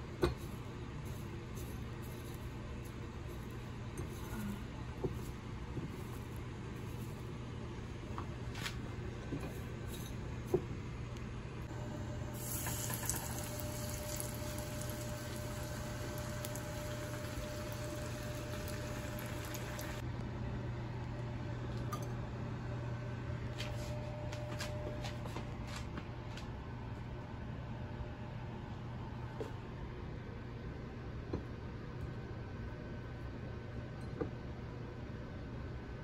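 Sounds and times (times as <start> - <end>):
steady low hum: 0.0 - 36.0
oil sizzling in a frying pan: 12.4 - 20.0.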